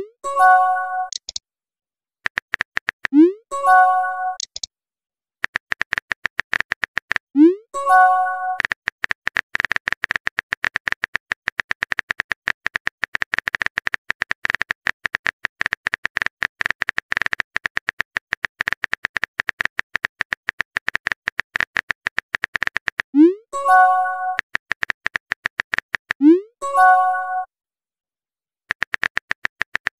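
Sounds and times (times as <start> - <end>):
phone keyboard typing clicks: 1.0 - 1.4, 2.2 - 3.2, 4.3 - 4.7, 5.4 - 7.3, 8.5 - 23.1, 23.7 - 26.2, 28.7 - 29.9.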